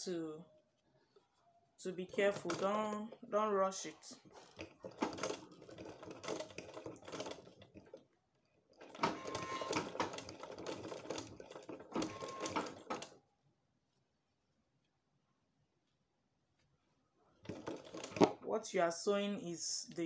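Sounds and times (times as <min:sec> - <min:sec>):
sewing machine stitching: 0:02.0 - 0:13.2, 0:17.4 - 0:18.5.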